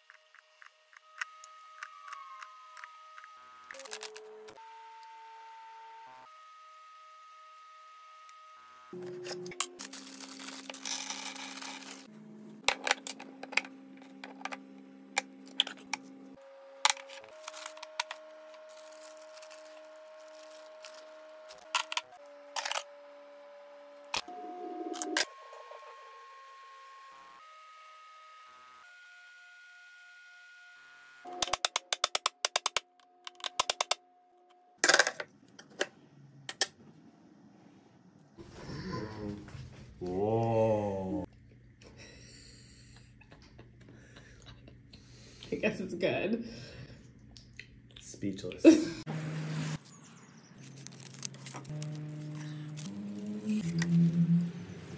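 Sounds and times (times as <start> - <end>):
tin scraping: 9.0 - 12.1
plastic bag rustling: 9.7 - 12.1, 17.3 - 21.6, 50.6 - 53.7.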